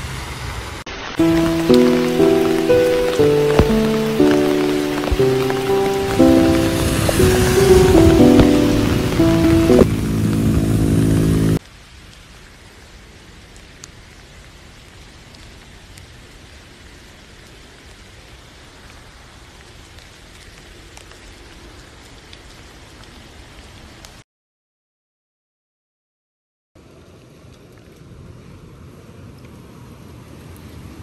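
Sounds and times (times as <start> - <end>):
rain pattering: 0.0 - 24.2, 26.8 - 31.0
music: 1.2 - 10.2.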